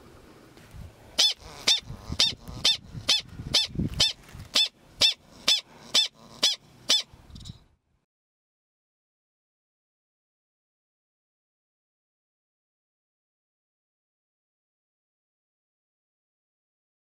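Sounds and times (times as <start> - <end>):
prairie dog barking: 1.2 - 7.1.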